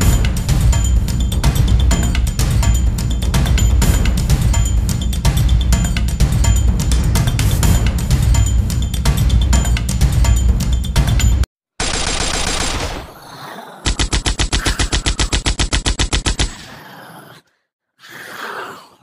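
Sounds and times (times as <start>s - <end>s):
machine-gun shots: 11.8s - 13.2s, 13.8s - 16.6s
breathy groan-like sound: 13.1s - 15.4s, 16.5s - 19.0s.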